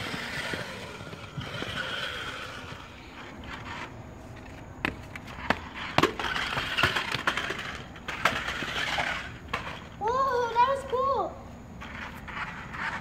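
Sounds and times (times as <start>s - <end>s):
toy car clattering down steps: 4.8s - 10.0s.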